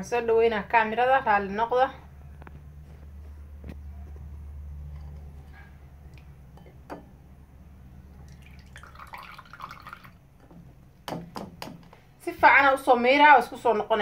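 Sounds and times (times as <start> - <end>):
juice dripping into a bowl: 6.1 - 6.8, 8.0 - 10.7.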